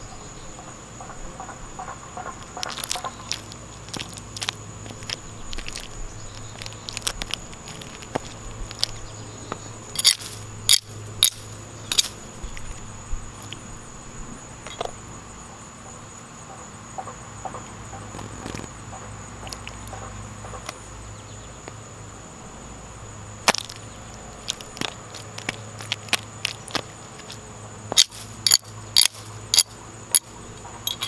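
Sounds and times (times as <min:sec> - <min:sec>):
small ticks: 0:00.6 - 0:13.7, 0:17.0 - 0:20.8, 0:23.5 - 0:31.0
sharp clicks and pops: 0:02.2 - 0:09.0, 0:23.4 - 0:30.3.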